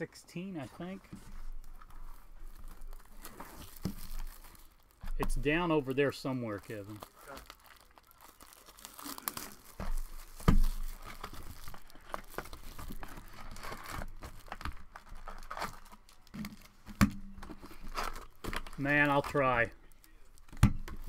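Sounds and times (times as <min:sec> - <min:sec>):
foil wrapper crinkling and tearing: 0:01.5 - 0:21.0.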